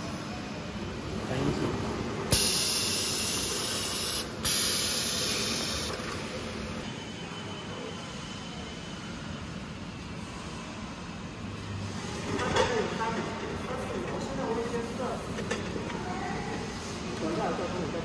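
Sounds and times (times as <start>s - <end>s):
steady background noise: 0.0s - 18.0s
compressed air hiss: 2.3s - 6.0s.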